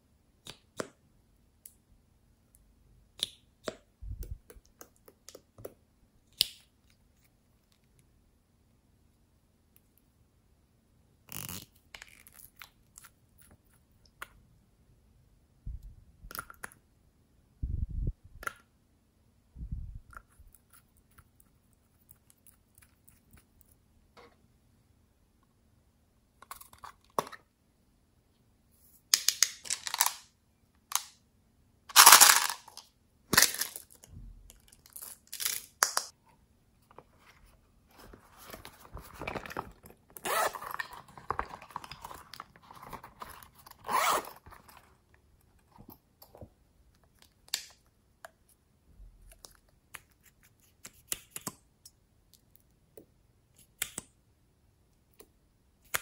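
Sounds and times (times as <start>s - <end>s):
plastic scraping and rustling: 36.9s - 44.9s
plastic clicks and snaps: 53.7s - 54.2s.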